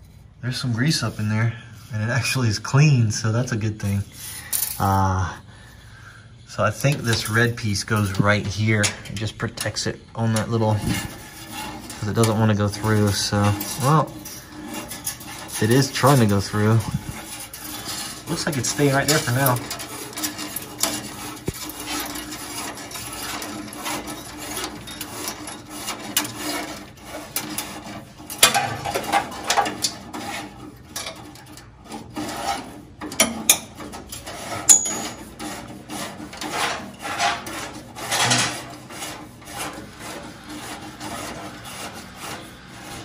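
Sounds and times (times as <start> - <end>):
metal cable scraping in tube: 6.4 - 43.0.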